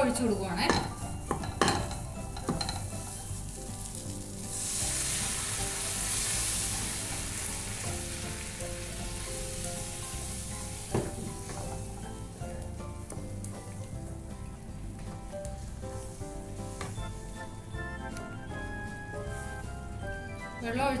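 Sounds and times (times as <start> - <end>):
paste sizzling in a pan: 1.1 - 14.0, 15.4 - 20.2
water poured into pan: 3.6 - 12.0.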